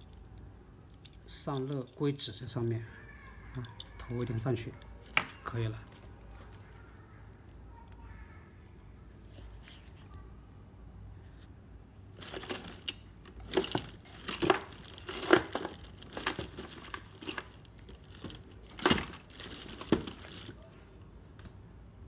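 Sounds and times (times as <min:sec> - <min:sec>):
paper rustling and crinkling: 0:12.1 - 0:20.8.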